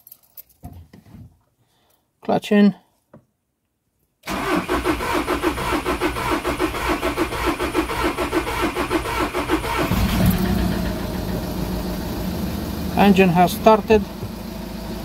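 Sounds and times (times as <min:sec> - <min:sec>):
starter motor cranking: 0:04.3 - 0:11.2
diesel engine idling: 0:09.8 - 0:15.0.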